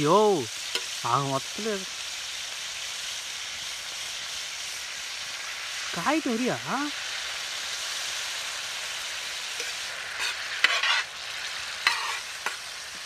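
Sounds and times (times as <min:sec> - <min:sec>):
hot oil sizzling: 0:00.0 - 0:13.0
metal spatula scraping a pan: 0:09.6 - 0:12.7.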